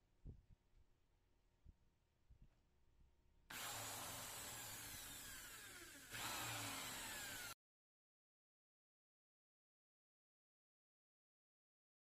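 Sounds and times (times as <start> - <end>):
electric drill boring wood: 3.5 - 7.6.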